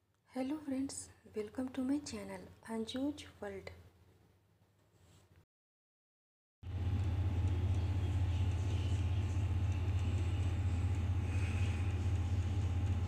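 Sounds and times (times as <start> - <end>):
low hum: 6.6 - 13.0.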